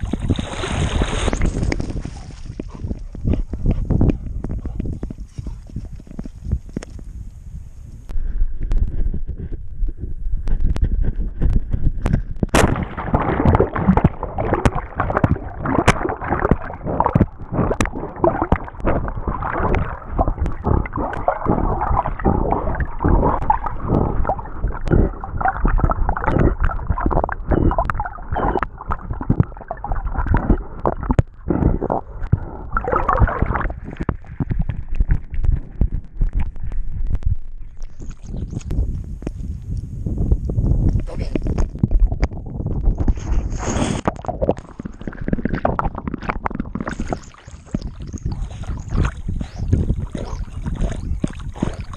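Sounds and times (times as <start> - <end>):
dog plunging into water splash: 0.0 - 2.6, 12.6 - 27.0, 42.9 - 51.9
water sloshing and gurgling: 0.0 - 7.0, 10.4 - 39.8, 40.5 - 51.9.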